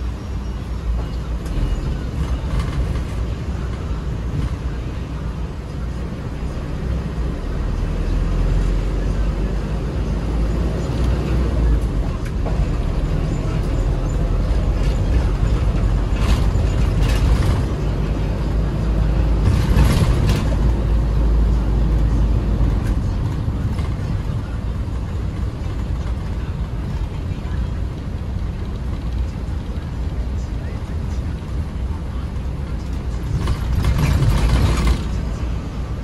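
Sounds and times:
minibus engine and road rumble: 0:00.0 - 0:36.0.

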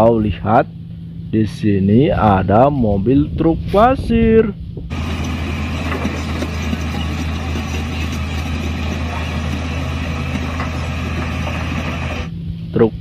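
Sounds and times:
diesel truck engine running: 0:04.6 - 0:12.7.

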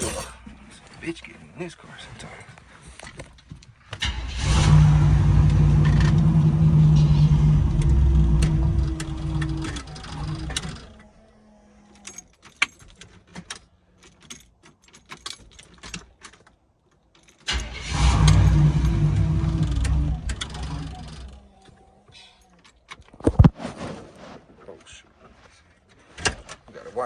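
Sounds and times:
car engine running: 0:04.4 - 0:11.0, 0:18.0 - 0:21.5
keys jangling: 0:12.0 - 0:17.5.

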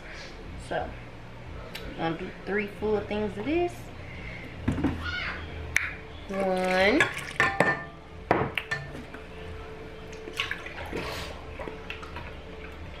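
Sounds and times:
glass cup clinking on steel bowl: 0:07.0 - 0:09.0.

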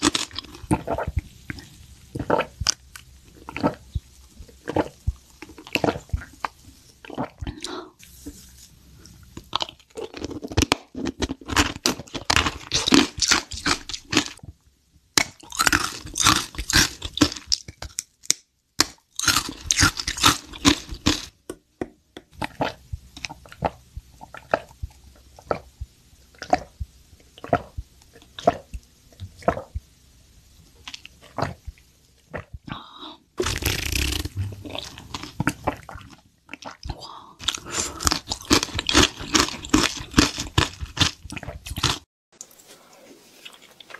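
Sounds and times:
crunching and chewing toffee: 0:00.0 - 0:07.7, 0:09.3 - 0:14.4, 0:15.2 - 0:21.4, 0:33.4 - 0:42.1.

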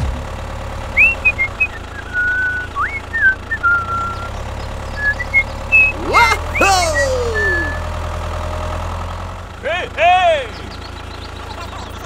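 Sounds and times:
low engine-like hum: 0:00.0 - 0:12.0
person whistling a tune: 0:01.0 - 0:04.3, 0:05.0 - 0:07.8.

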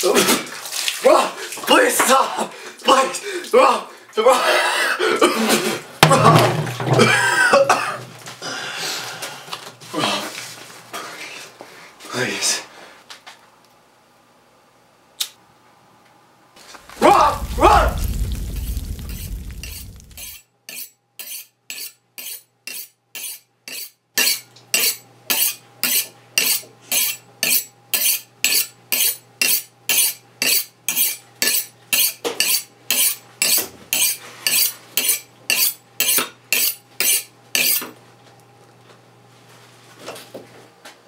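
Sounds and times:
knife scraping on sharpening steel: 0:20.2 - 0:37.9.

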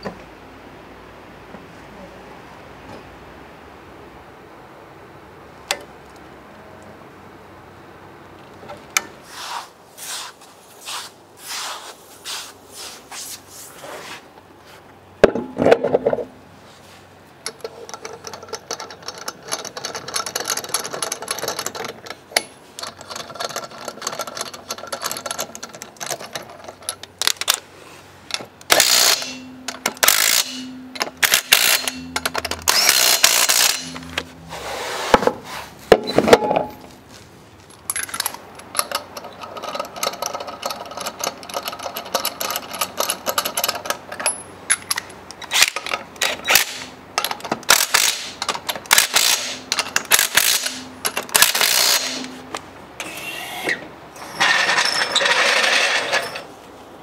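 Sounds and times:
tools scraping and knocking: 0:15.2 - 0:16.3, 0:28.3 - 0:56.6
power tool bursts: 0:28.7 - 0:32.1, 0:32.7 - 0:34.1, 0:47.7 - 0:52.4.

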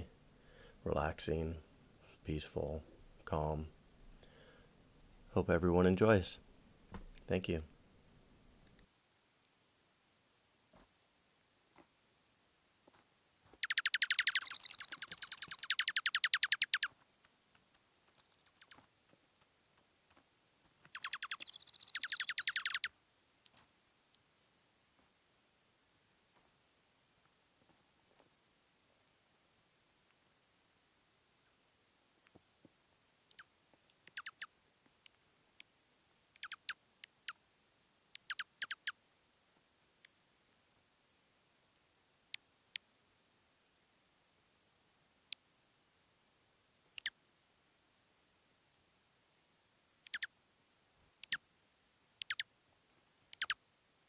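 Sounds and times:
bird trilling song: 0:12.9 - 0:17.1, 0:18.0 - 0:18.9, 0:20.8 - 0:22.9, 0:34.1 - 0:34.5, 0:36.4 - 0:37.4, 0:38.2 - 0:39.0, 0:50.1 - 0:50.3, 0:52.2 - 0:52.5, 0:53.3 - 0:53.6.

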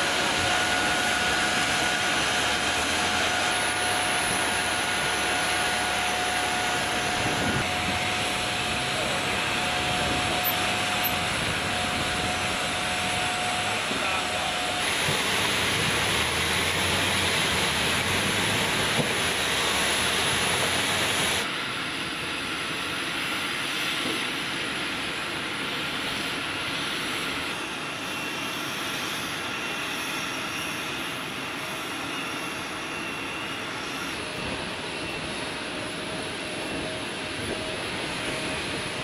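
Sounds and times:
engine and machinery noise: 0:00.0 - 0:39.0.

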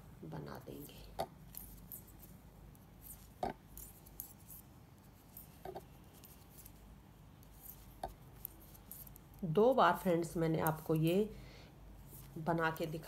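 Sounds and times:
knitting needles clicking: 0:10.5 - 0:11.1.

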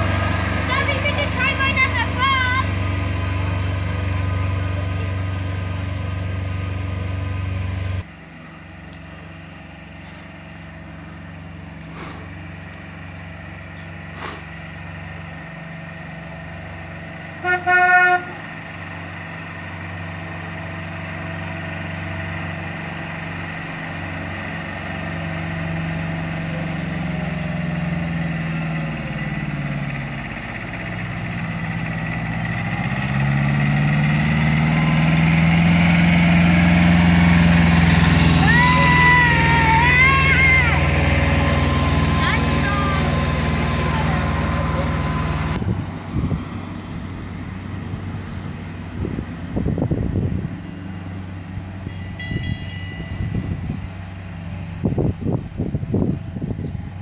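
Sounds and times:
road train engine humming: 0:00.0 - 0:57.0
distant train horn toots: 0:17.4 - 0:18.4.

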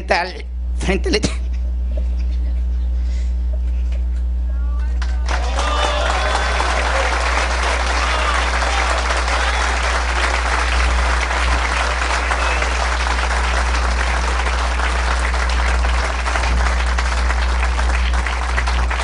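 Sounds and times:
low steady hum: 0:00.0 - 0:19.0
audience applauding: 0:05.0 - 0:19.0.

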